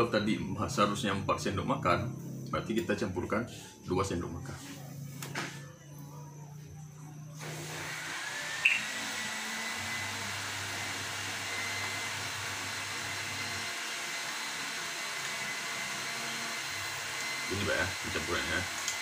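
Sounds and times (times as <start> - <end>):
faint motor whine: 0.0 - 19.0
blower motor whooshing: 7.3 - 19.0.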